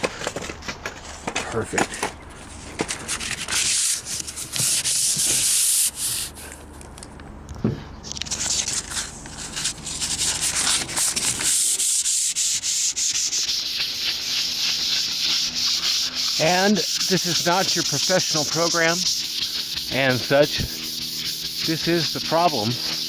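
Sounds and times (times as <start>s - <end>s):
sandpaper scratching on metal: 3.1s - 6.4s, 8.3s - 23.0s.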